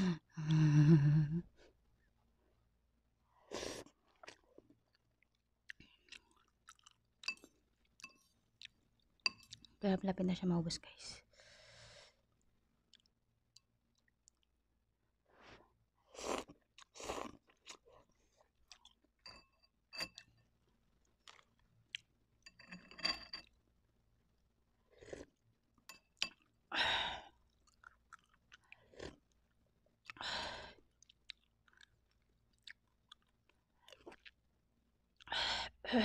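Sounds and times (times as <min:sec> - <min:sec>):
chewing: 0:04.1 - 0:09.8, 0:21.1 - 0:22.1, 0:27.4 - 0:30.2, 0:30.8 - 0:34.4.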